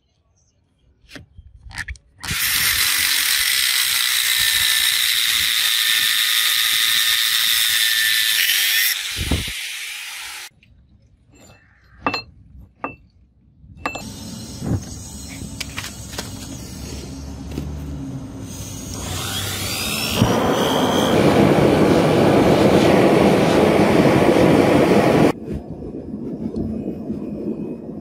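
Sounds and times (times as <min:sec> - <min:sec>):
angle grinder cutting steel: 0:02.2 - 0:10.5, 0:18.4 - 0:23.6.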